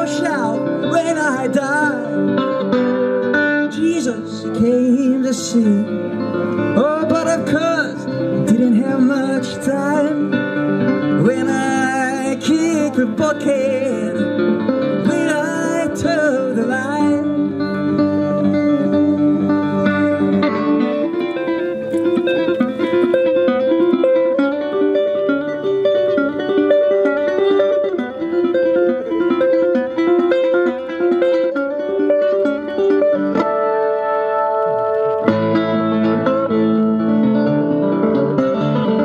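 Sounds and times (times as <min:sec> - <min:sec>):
person singing: 0:00.0 - 0:02.9, 0:03.6 - 0:31.0
resonator guitar playing: 0:00.0 - 0:39.0.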